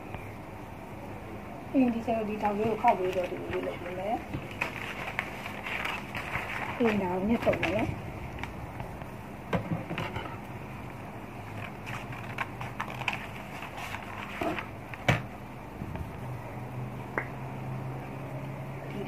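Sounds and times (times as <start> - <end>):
paper rustling: 2.6 - 8.6, 11.5 - 15.1.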